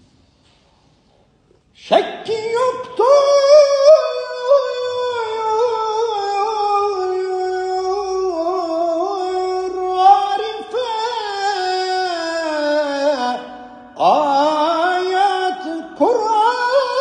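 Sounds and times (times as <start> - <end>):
man singing unaccompanied: 1.8 - 17.0.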